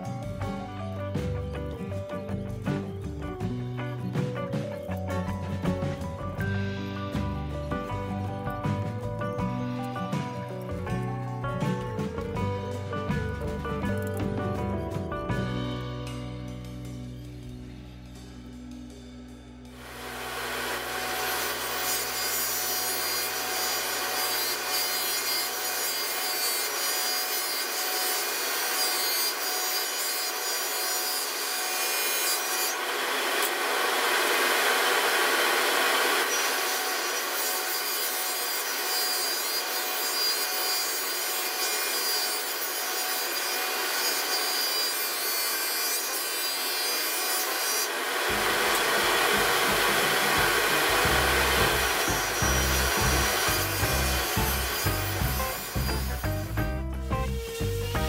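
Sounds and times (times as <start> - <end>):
table saw cutting wood: 19.8 - 58.0.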